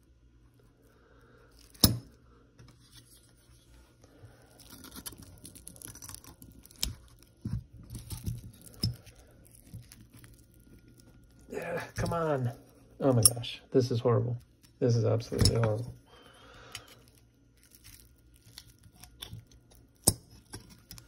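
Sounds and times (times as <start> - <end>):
plastic wrap crinkling and tearing: 2.8 - 13.2, 14.4 - 14.8, 16.8 - 21.0.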